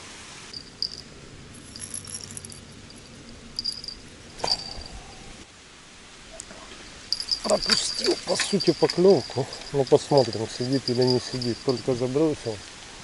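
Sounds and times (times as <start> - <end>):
small bells jingling: 0.5 - 5.0, 7.1 - 12.6.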